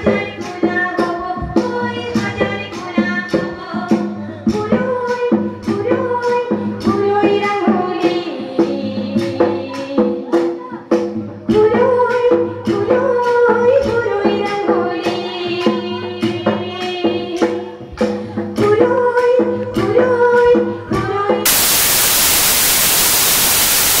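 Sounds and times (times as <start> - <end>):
loud static hiss: 21.5 - 24.0.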